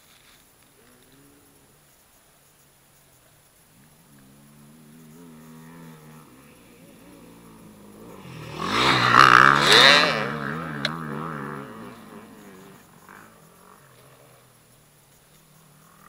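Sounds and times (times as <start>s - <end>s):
quad bike engine passing by: 3.7s - 16.0s.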